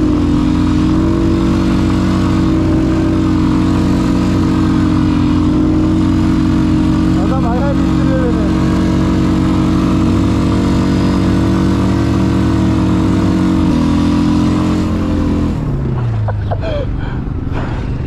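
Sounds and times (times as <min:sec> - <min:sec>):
atv engine running: 0:00.0 - 0:18.0.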